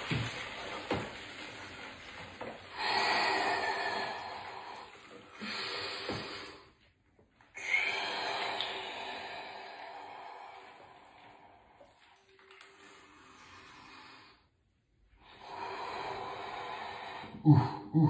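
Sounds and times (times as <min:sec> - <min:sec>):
man breathing hard: 0:02.8 - 0:06.7.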